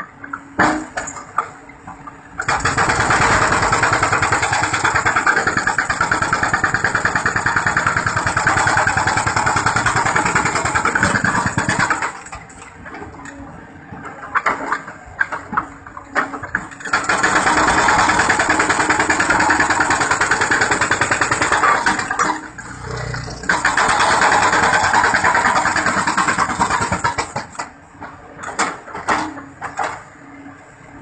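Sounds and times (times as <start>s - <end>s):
excavator engine running: 0.0s - 31.0s
hydraulic breaker hammering rock: 2.4s - 12.6s, 14.2s - 27.8s.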